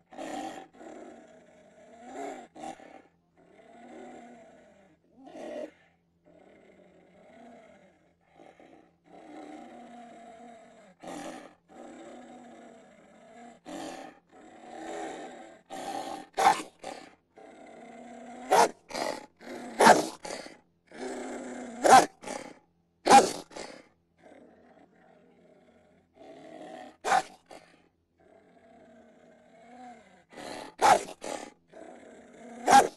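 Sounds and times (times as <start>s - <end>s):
rough animal growls and roars: 0.0s - 32.9s.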